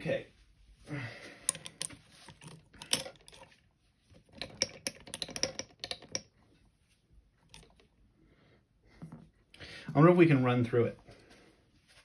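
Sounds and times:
padlock clicking and rattling: 1.5 - 3.5, 4.3 - 6.3.

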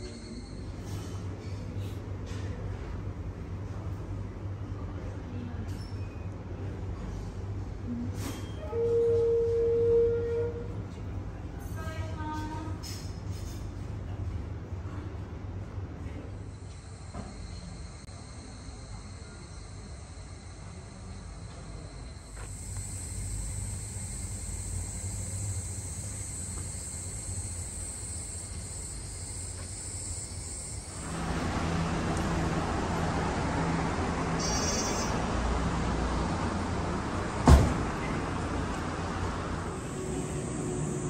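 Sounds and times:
high-pitched insect drone: 16.5 - 31.2, 34.4 - 35.2, 39.7 - 41.0.

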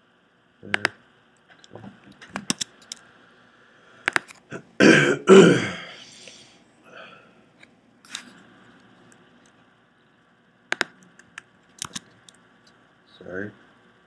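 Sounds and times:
sharp clicks: 0.7 - 3.0, 4.0 - 4.4, 10.7 - 12.8
man coughing: 4.5 - 6.0.

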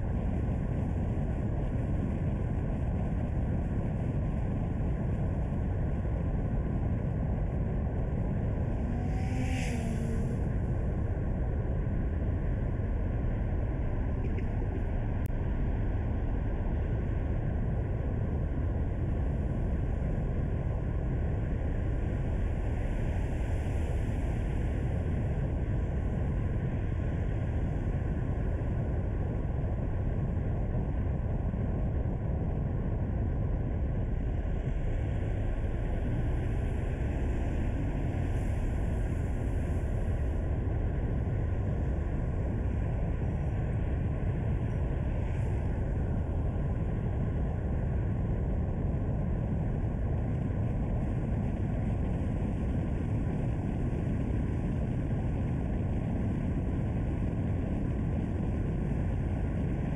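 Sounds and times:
car driving on paved road: 3.9 - 15.2, 33.7 - 48.8.

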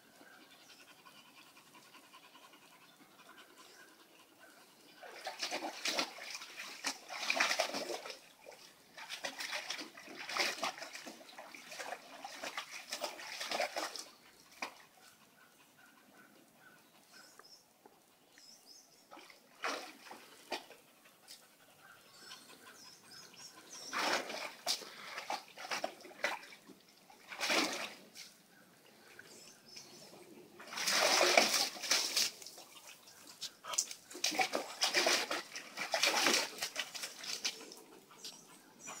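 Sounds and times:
dog splashing water in pool: 5.0 - 14.9, 19.1 - 20.9, 23.7 - 28.4, 30.6 - 38.9.

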